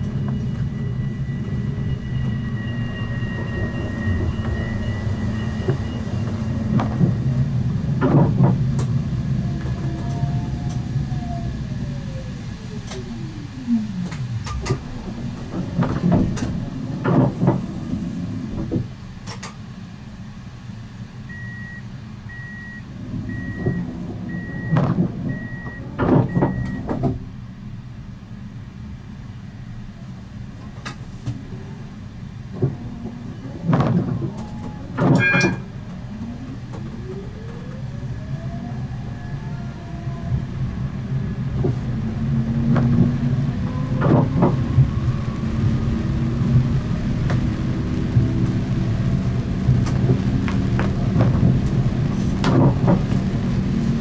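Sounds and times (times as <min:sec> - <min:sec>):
tram electric drive whining: 0:00.0 - 0:54.0
tram running rumble: 0:00.0 - 0:54.0
short door warning beeps: 0:21.3 - 0:26.9, 0:35.1 - 0:35.7.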